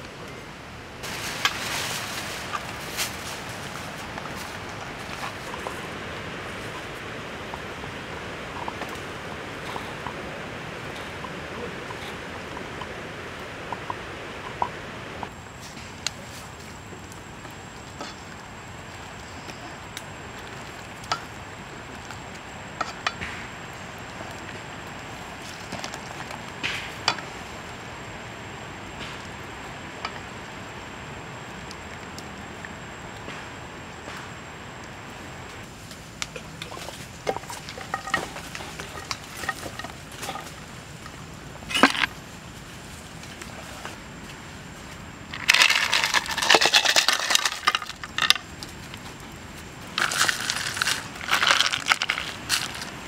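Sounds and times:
ice crackling on hot pan: 1.0 - 7.8, 35.6 - 42.2, 45.2 - 49.2, 49.8 - 53.0
ice cubes clattering in a frying pan: 37.3 - 40.6, 45.3 - 48.5, 50.0 - 52.9.

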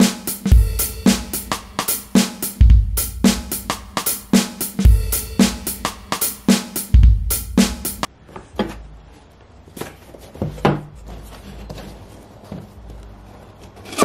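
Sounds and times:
drum hits: 0.0 - 8.1
knocks and scrapes of cardboard boxes: 9.7 - 14.0.

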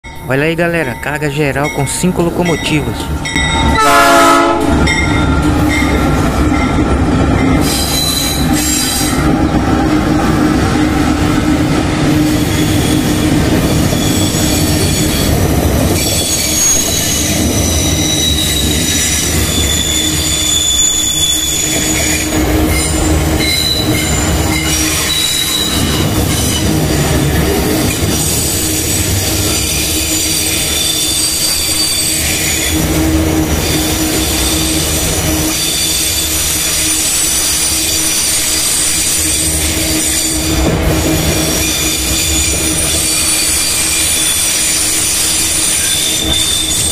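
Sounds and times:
freight train wheels rumbling: 0.0 - 46.9
high-pitched wheel squeal: 7.6 - 9.2, 12.2 - 15.4, 16.0 - 26.7, 29.6 - 32.9, 35.4 - 46.9.

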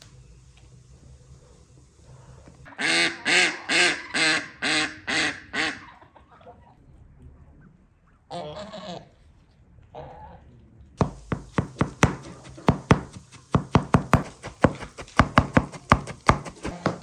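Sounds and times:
waterfowl honking: 2.7 - 6.1.

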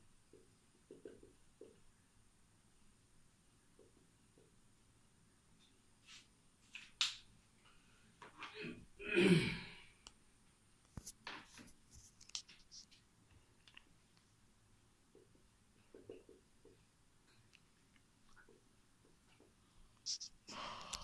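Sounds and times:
marker scratching on whiteboard: 11.0 - 13.0, 20.1 - 20.4.

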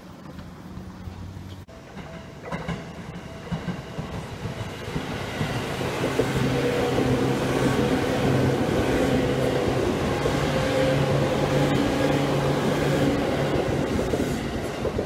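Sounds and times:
electric train running past: 0.5 - 15.0.

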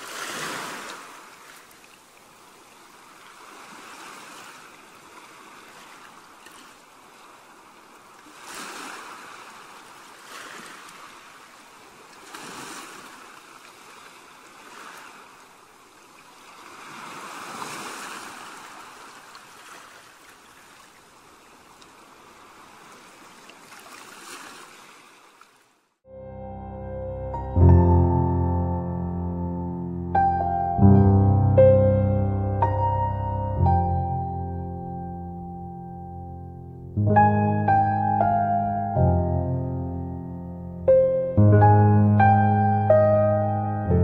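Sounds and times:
small waves washing onto shore: 0.0 - 26.0.

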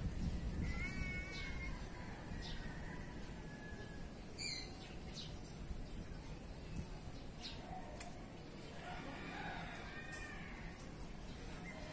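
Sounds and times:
wind buffeting microphone: 0.0 - 4.3
high bird chirps: 4.4 - 5.4.

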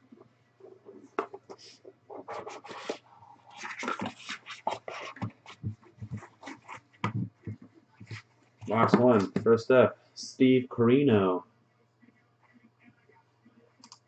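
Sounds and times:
cardboard rustling and scraping: 0.7 - 9.5.

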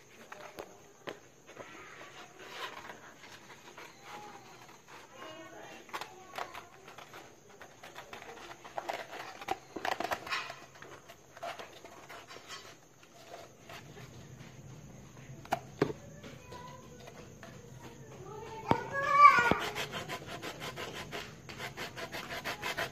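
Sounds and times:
plastic pipe scraping sandpaper: 1.6 - 14.2, 19.0 - 22.9.

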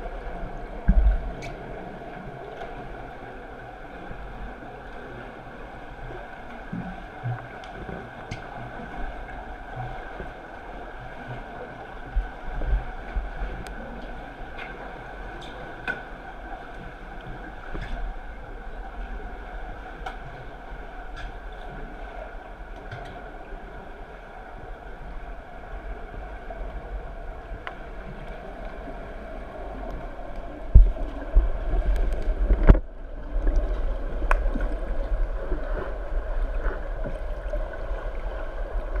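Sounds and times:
muffled underwater hum: 0.0 - 39.0
water gurgles: 0.0 - 39.0
faint clicks: 31.9 - 34.8.

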